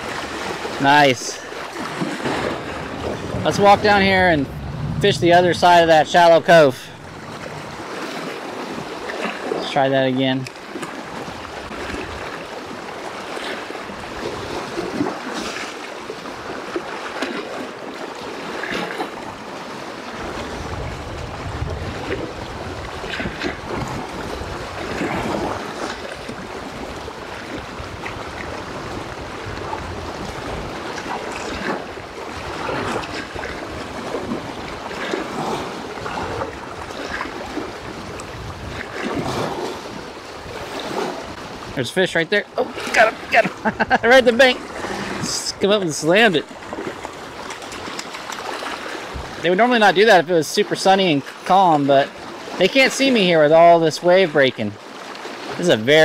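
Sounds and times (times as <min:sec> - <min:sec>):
wind buffeting microphone: 0:00.0 - 0:09.6, 0:18.3 - 0:41.9, 0:42.5 - 0:45.7, 0:46.4 - 0:49.5
waves breaking on rocky shore: 0:00.0 - 0:56.0.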